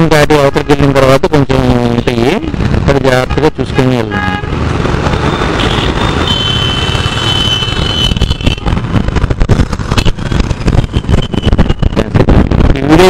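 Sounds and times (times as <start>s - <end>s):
motorcycle engine: 4.1s - 12.0s
wind buffeting on microphone: 7.7s - 13.0s.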